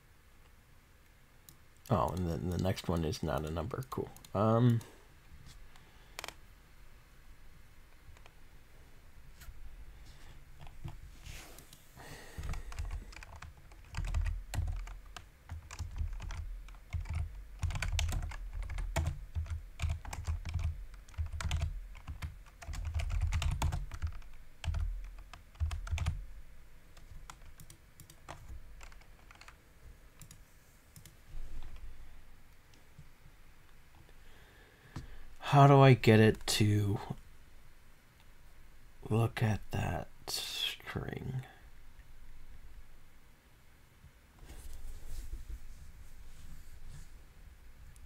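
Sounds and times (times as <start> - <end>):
typing on a keyboard: 1.8 - 4.9, 6.2 - 6.4, 12.4 - 26.2, 27.0 - 29.6.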